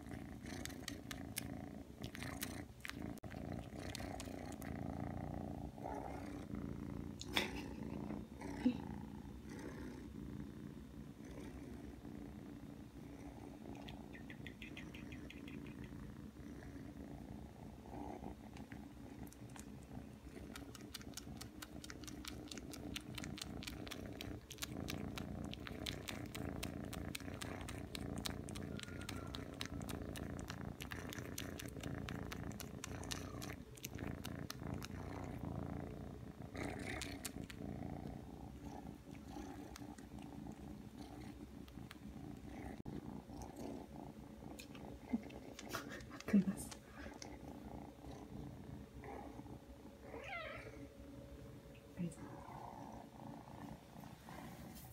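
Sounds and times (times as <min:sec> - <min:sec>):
kitten purring: 0:00.0 - 0:54.9
kitten sucking clicks: 0:20.5 - 0:28.6.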